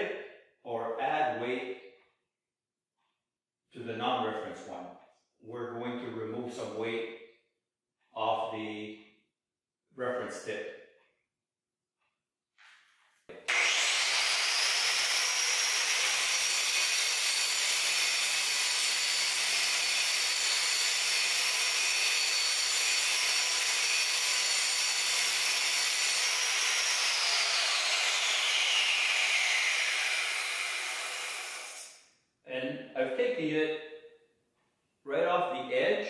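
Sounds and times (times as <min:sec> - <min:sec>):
angle grinder grinding steel: 0:13.4 - 0:32.0.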